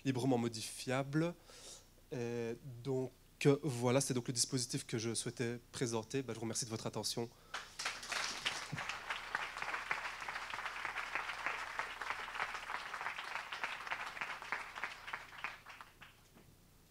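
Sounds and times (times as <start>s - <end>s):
audience applauding: 7.5s - 16.3s.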